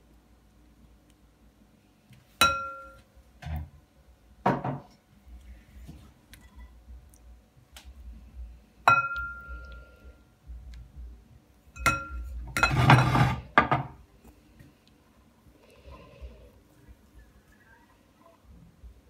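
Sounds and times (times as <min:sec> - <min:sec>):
spatula clinking glass bowl: 0:11.8 - 0:13.3
spatula scraping bowl: 0:12.5 - 0:13.6.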